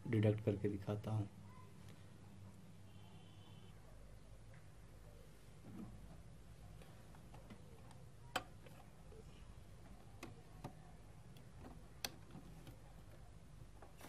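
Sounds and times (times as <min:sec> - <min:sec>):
faint low hum: 0:00.0 - 0:14.0
clicks and taps of connectors: 0:10.1 - 0:13.2.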